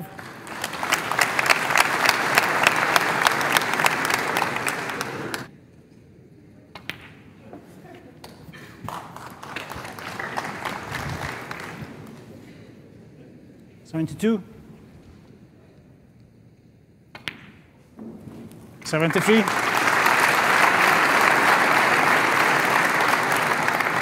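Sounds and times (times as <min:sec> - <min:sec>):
audience applauding: 0:00.0 - 0:05.5, 0:08.8 - 0:12.2, 0:18.8 - 0:24.0.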